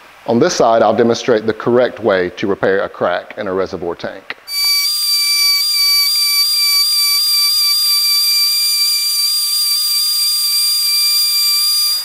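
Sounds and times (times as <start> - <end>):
die grinder whining: 4.5 - 12.0.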